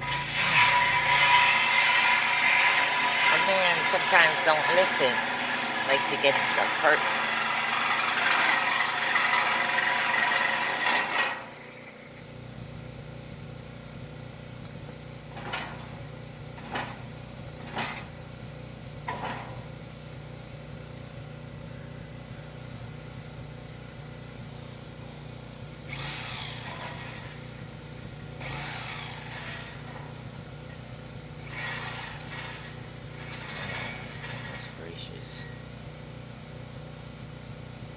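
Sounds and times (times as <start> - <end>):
reciprocating saw cutting steel: 0.0 - 12.2, 25.9 - 27.7, 28.3 - 30.2, 31.4 - 35.5
steady low hum: 0.0 - 37.9.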